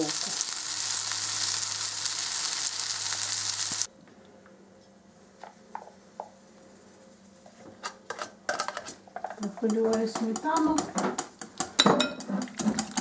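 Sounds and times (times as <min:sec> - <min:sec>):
frying in hot oil sizzling: 0:00.0 - 0:03.9.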